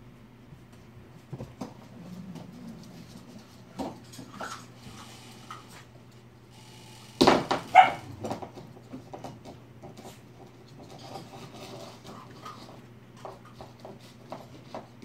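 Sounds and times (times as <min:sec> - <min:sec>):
dog barking: 0:07.7 - 0:08.2.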